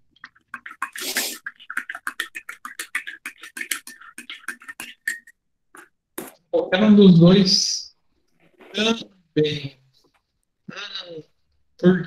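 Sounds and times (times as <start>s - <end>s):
keyboard typing: 0.3s - 6.4s
short hiss: 1.0s - 1.4s.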